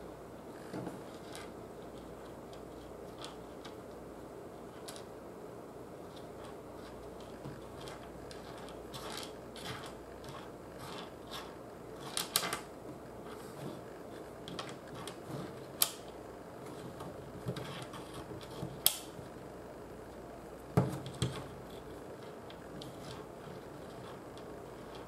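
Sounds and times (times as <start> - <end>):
low room noise: 0.0 - 25.0
magnets ticking and scraping: 6.0 - 19.2.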